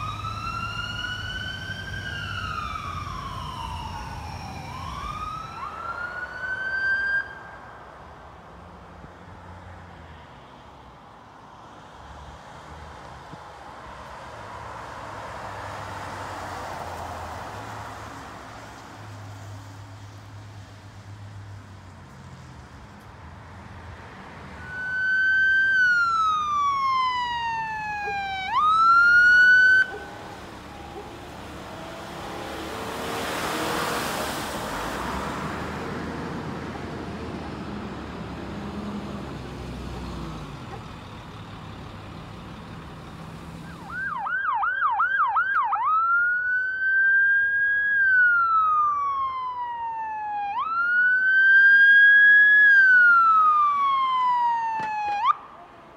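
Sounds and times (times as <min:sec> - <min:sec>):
ambulance siren: 0:00.0 - 0:08.2, 0:24.4 - 0:34.4, 0:43.5 - 0:55.9
passing vehicles: 0:00.0 - 0:55.9.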